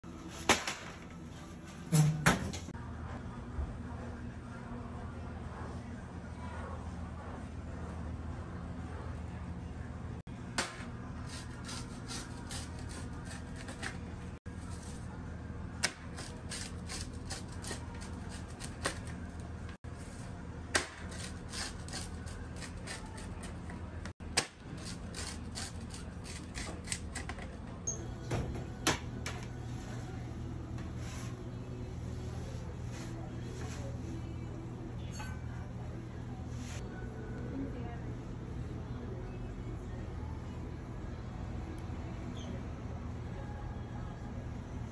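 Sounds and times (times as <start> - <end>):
pizza cutter crunching crust: 11.2 - 15.0, 15.8 - 19.4, 20.8 - 27.3.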